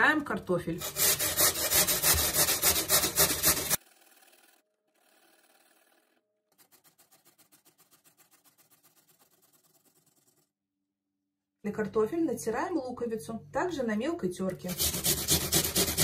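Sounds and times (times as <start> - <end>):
potato grating on metal grater: 0.8 - 5.8, 6.5 - 10.4, 14.6 - 16.0.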